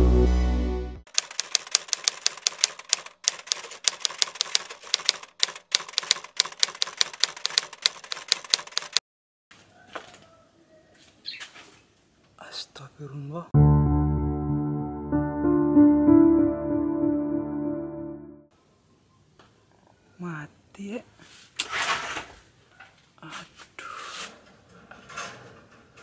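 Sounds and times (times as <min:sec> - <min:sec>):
typewriter key clacks: 0:01.1 - 0:09.0
electronic intro music: 0:13.6 - 0:18.5.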